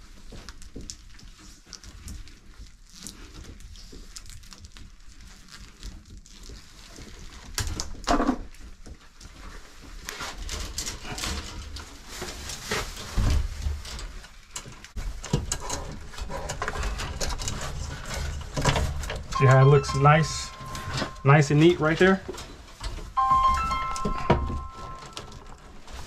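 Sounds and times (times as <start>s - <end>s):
wires rustling and scraping on metal: 10.1s - 19.4s
short pitched sound: 19.4s - 22.2s, 23.2s - 25.4s.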